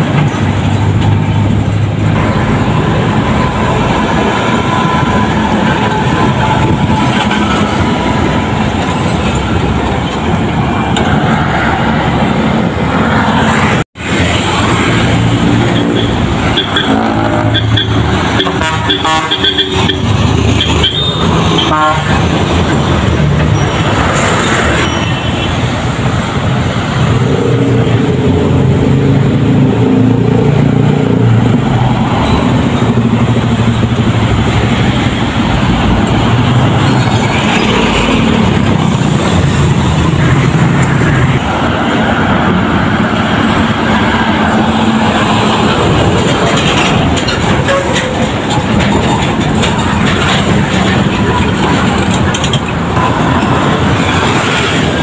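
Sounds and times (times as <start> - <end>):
heavy diesel trucks passing: 0.0 - 55.0
vehicle horn tooting: 15.8 - 22.1.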